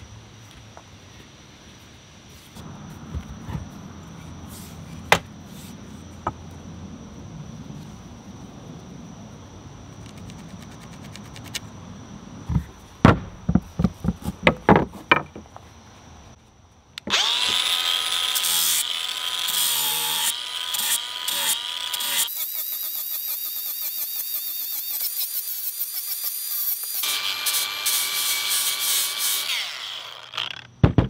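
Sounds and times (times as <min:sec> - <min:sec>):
knocks on wooden board: 0:12.5 - 0:15.4, 0:30.8 - 0:31.0
angle grinder grinding wood: 0:17.1 - 0:30.7.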